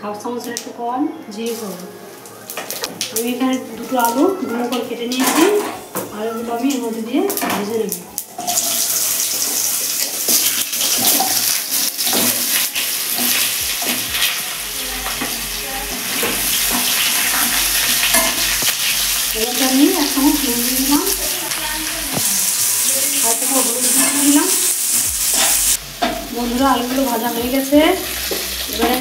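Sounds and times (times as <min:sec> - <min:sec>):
potatoes sizzling in hot oil: 0:06.7 - 0:29.0
spatula scraping and tapping a pan: 0:15.0 - 0:19.0, 0:25.3 - 0:27.2, 0:28.1 - 0:29.0.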